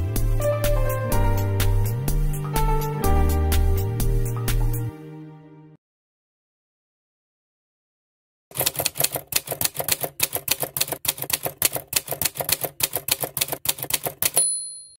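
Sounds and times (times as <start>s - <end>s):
typewriter key clacks: 8.5s - 14.6s
typewriter bell ding: 8.6s - 15.0s.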